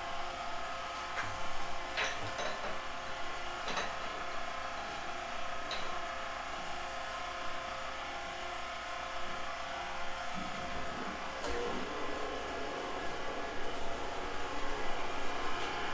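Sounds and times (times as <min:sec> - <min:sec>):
machine hum: 0:09.7 - 0:15.9.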